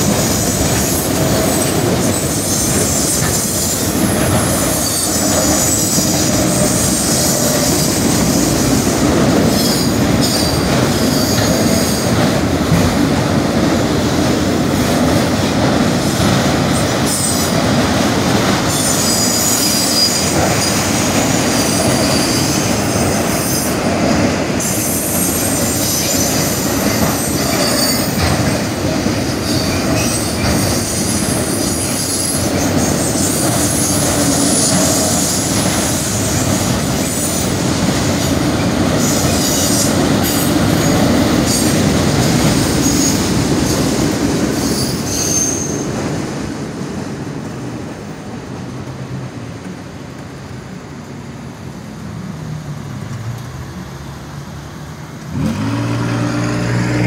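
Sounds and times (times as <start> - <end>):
steel wheels rumbling on rail: 0.0 - 57.0
high-pitched wheel squeal: 18.7 - 20.8, 44.6 - 45.9.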